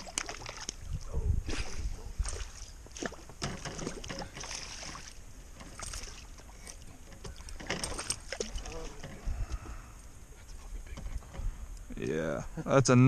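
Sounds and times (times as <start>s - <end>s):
water splashing against boat: 0.0s - 9.8s
low wind rumble: 0.4s - 3.4s, 5.2s - 13.0s.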